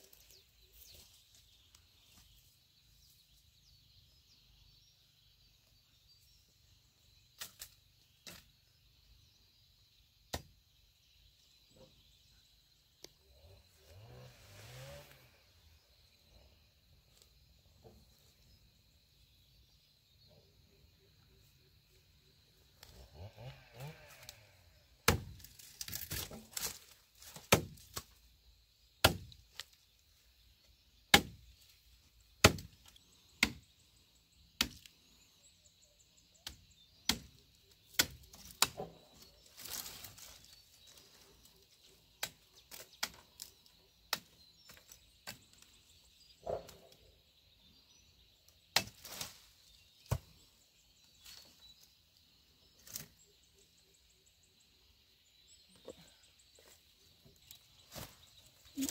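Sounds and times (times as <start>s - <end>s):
blade chopping sapling stems: 7.4s - 8.5s, 10.3s - 10.6s, 25.0s - 28.2s, 29.0s - 29.8s, 31.1s - 31.6s, 32.4s - 33.8s, 34.5s - 34.9s, 36.4s - 41.4s, 42.0s - 45.8s, 48.6s - 50.5s, 52.7s - 53.3s, 57.3s - 58.9s.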